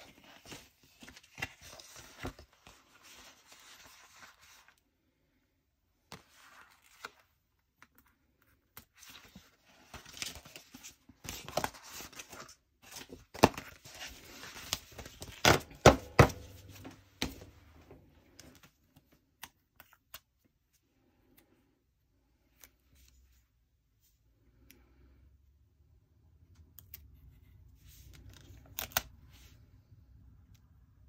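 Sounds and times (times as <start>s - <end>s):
paper rustling and crinkling: 0.0s - 4.8s, 6.1s - 17.5s.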